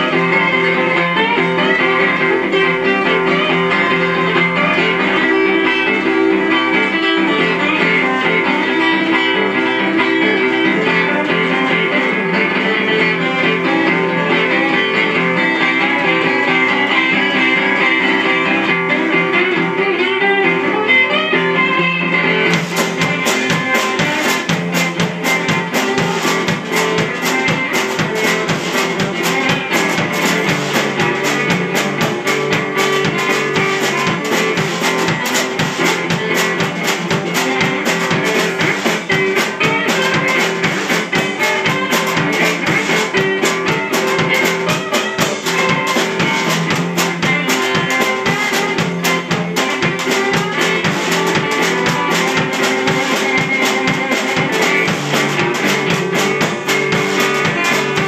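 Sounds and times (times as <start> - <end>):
drum kit beat: 0.0 - 19.9, 22.2 - 58.0
washboard rhythm: 22.4 - 58.0.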